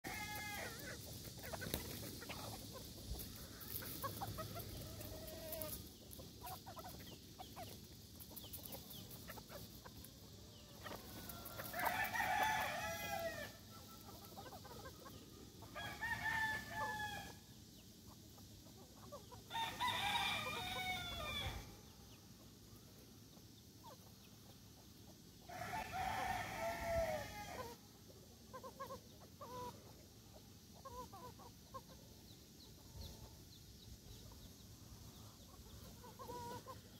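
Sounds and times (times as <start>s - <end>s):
roosters crowing: 0.0s - 5.9s, 10.6s - 14.3s, 15.6s - 17.5s, 19.4s - 21.8s, 25.4s - 27.9s
chickens clucking: 0.0s - 36.9s.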